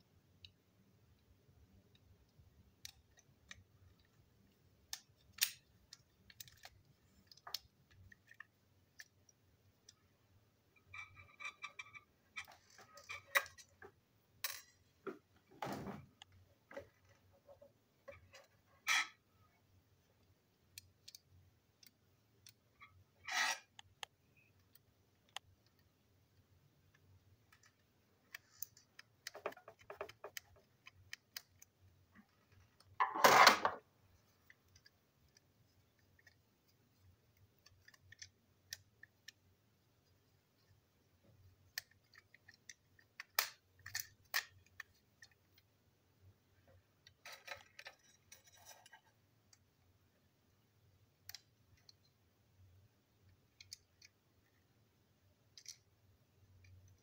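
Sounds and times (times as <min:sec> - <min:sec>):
plastic toy parts clicking: 0:04.8 - 0:10.0, 0:20.6 - 0:33.8, 0:34.4 - 0:39.5, 0:41.6 - 0:45.7, 0:53.2 - 0:54.2, 0:55.4 - 0:57.0.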